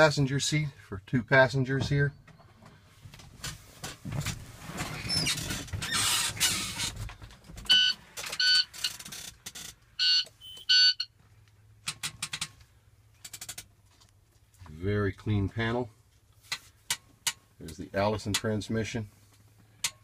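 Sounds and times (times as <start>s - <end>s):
short electronic beeps: 7.7s - 8.7s, 10.0s - 11.1s.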